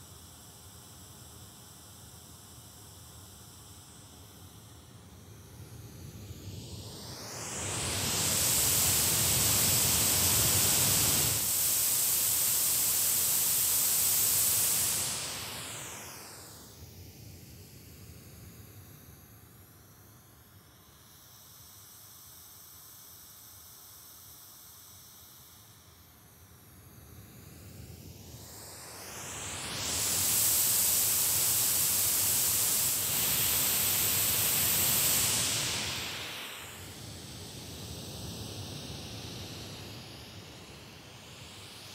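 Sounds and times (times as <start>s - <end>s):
white noise hiss from speaker: 0.0s - 41.9s
white noise from speaker: 25.4s - 41.9s.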